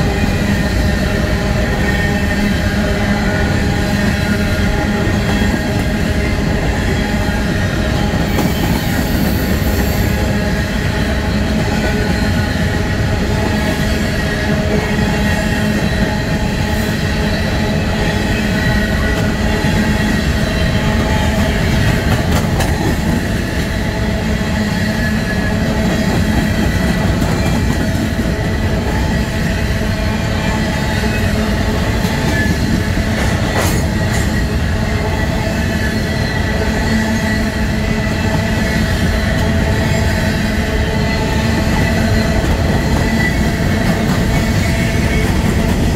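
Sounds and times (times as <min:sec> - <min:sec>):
train wheels rumbling on rail: 0:00.0 - 0:45.9.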